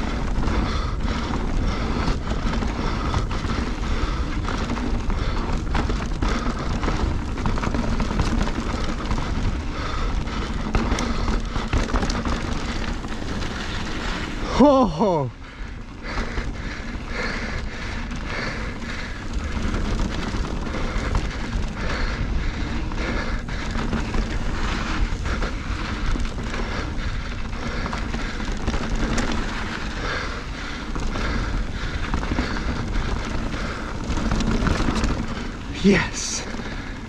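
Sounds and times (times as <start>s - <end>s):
wind rumble on microphone: 0.0s - 14.5s
bike rattling: 0.0s - 37.0s.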